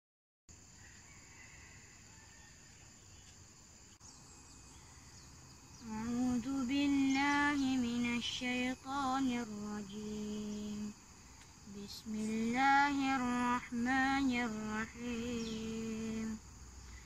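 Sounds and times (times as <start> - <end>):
high insect chorus: 0.5 - 17.0
person chanting melodically: 11.7 - 16.4.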